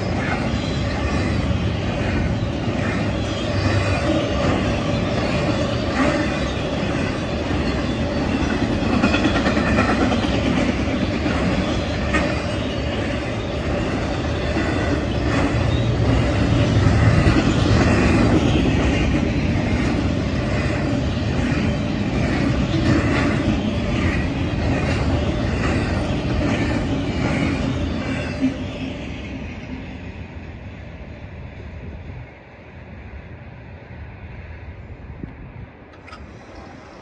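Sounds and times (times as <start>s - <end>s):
freight train wheels rumbling: 0.0s - 37.0s.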